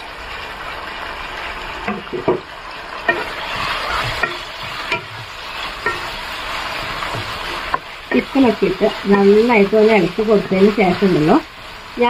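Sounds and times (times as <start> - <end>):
frying hiss: 0.0 - 12.0
spatula knocking against pan: 4.0 - 5.2.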